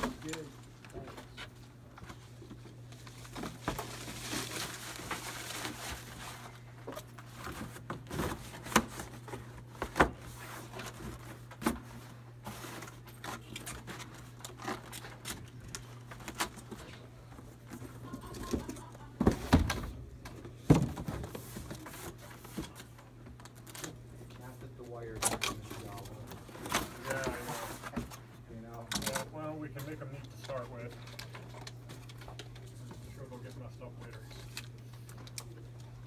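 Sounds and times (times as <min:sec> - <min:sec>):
plastic bag rustling: 0:02.9 - 0:09.6.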